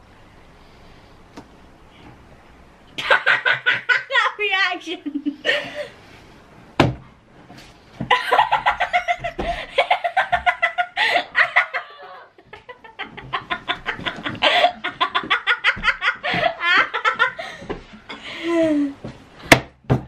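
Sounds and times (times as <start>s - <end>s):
young people laughing: 3.0s - 5.9s, 8.1s - 17.6s.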